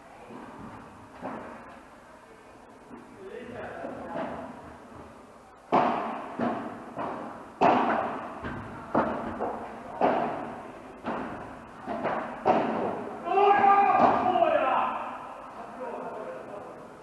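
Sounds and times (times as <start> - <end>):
ball bouncing off court: 5.7 - 13.0
rackets striking ball: 5.7 - 14.5.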